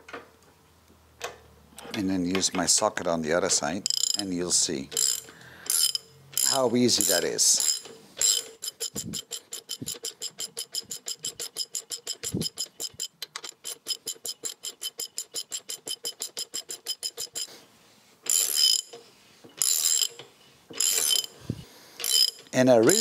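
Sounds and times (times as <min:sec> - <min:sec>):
ratchet wrench clicking: 0:03.8 - 0:04.3, 0:04.9 - 0:17.5, 0:18.2 - 0:19.0, 0:19.6 - 0:21.4, 0:22.0 - 0:23.0.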